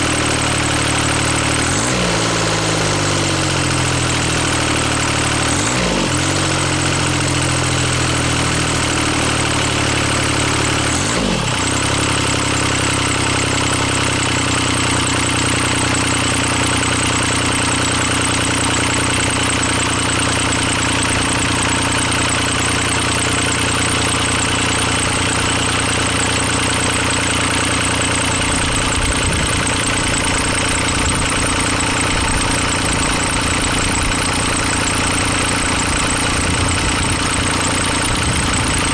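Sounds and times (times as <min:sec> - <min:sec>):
diesel engine running: 0:00.0 - 0:38.9.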